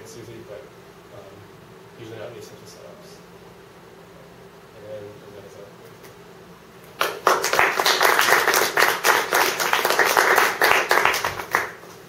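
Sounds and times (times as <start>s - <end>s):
audience applauding: 7.0s - 11.8s.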